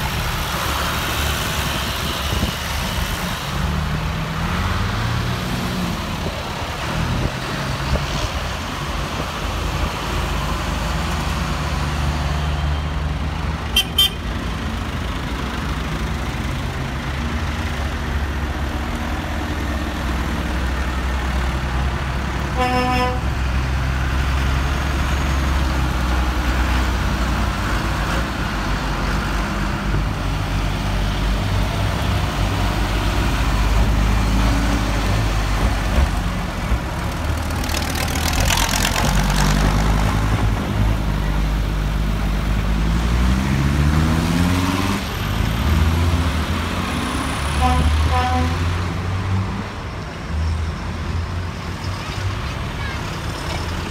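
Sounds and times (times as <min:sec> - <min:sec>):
tractor diesel engines passing: 0:00.0 - 0:53.9
horn toot: 0:22.6 - 0:23.3, 0:47.6 - 0:48.7
engine revving up: 0:42.7 - 0:49.5.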